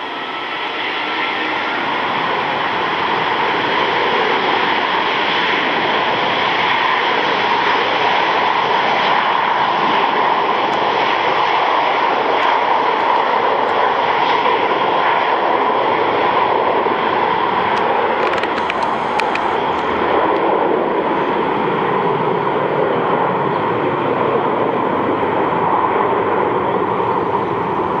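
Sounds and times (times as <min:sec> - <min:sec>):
jet engines at takeoff: 0:00.0 - 0:28.0.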